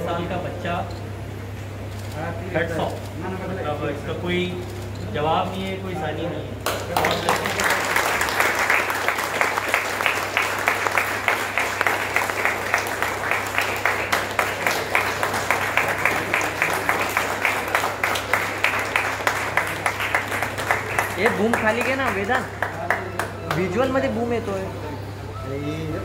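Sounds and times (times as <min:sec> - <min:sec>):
people clapping: 0:06.6 - 0:24.2.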